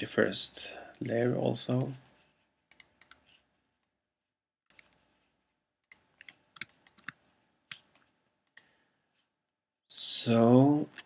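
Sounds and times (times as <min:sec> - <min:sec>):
mouse and keyboard clicks: 0:04.7 - 0:05.0, 0:05.9 - 0:08.6.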